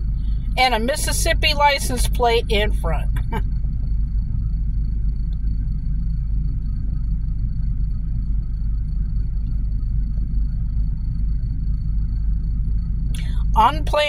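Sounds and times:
freight train rumbling: 0.0s - 5.0s, 12.8s - 14.0s.

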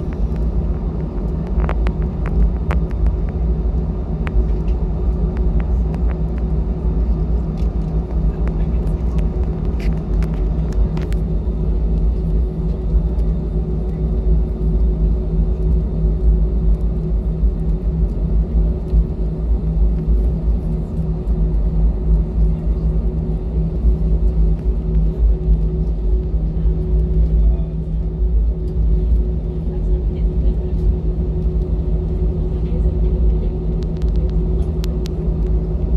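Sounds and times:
airplane cabin engine rumble: 0.0s - 35.9s
low hum: 0.0s - 35.9s.

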